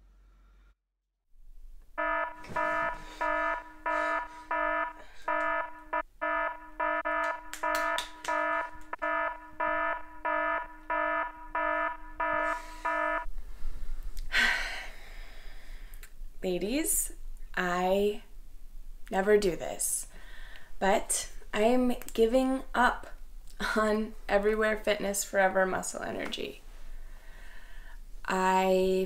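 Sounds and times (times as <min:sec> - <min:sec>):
buzzy electronic alarm beeps: 0:02.0 - 0:13.3.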